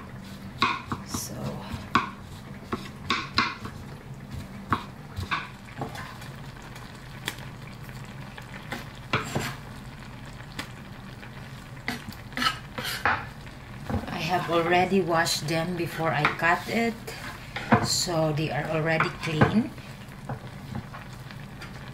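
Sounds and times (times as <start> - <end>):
meat sizzling in a frying pan: 0.0 - 21.9
knocks and scrapes on cutting board: 9.2 - 9.6.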